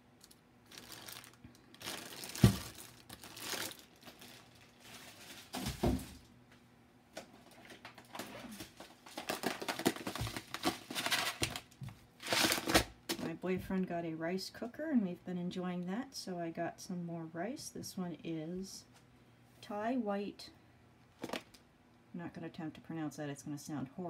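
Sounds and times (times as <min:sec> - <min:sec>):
plastic packaging crinkling: 0:00.2 - 0:06.1, 0:07.4 - 0:13.2, 0:21.2 - 0:21.6.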